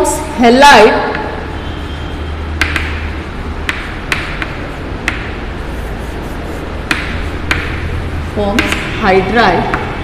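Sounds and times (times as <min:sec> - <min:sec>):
low electrical hum: 0:00.0 - 0:10.0
sharp taps on a board: 0:02.6 - 0:05.4, 0:06.8 - 0:07.9, 0:08.5 - 0:09.0, 0:09.6 - 0:10.0.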